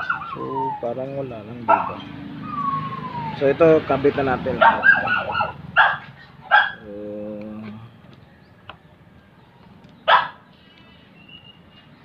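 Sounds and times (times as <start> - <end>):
dog barking: 1.7 - 2.1, 4.6 - 6.8, 10.1 - 10.4.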